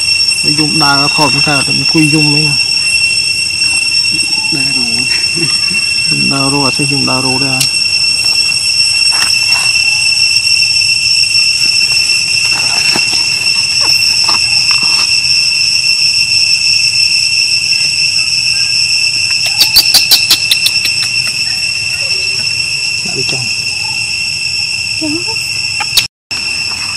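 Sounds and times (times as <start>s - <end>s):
high-pitched whine: 0.0s - 26.9s
baby monkey squeaks: 18.5s - 22.8s
sharp clicks: 19.3s - 21.4s.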